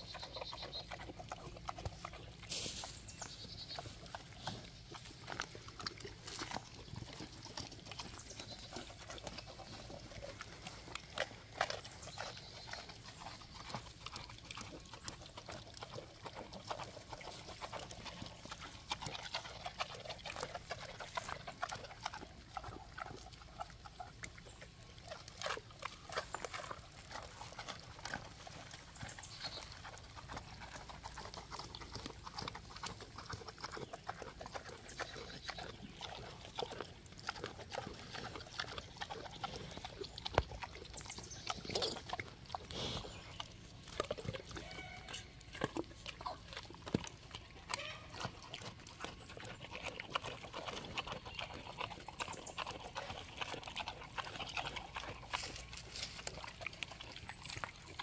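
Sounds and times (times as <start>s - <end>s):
pigs chewing and snuffling: 0.0s - 58.0s
pig grunts: 3.8s - 58.0s
piglets squealing: 44.5s - 46.4s, 47.7s - 48.6s.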